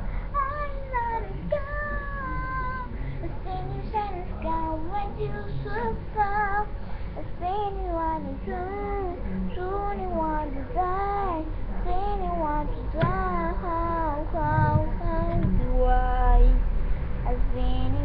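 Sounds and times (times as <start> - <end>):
child singing: 0.3 - 16.6, 17.3 - 18.0.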